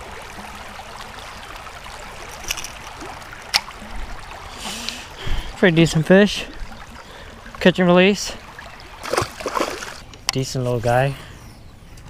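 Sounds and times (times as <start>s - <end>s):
river water flowing over rocks: 0.0s - 7.6s, 8.3s - 10.0s.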